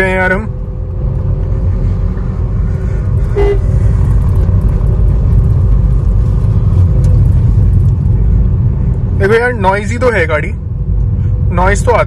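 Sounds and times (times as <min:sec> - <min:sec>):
car engine low rumble: 0:00.0 - 0:12.0
road noise: 0:00.0 - 0:12.0
car horn toot: 0:03.3 - 0:03.7.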